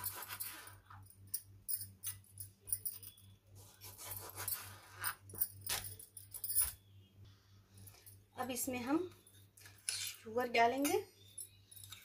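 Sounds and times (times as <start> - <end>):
bangles jingling: 0.0 - 3.4, 4.0 - 6.9.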